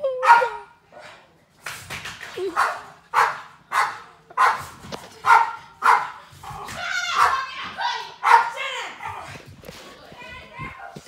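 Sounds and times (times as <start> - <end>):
dog barking: 0.2 - 0.7, 2.5 - 6.2, 8.2 - 9.2.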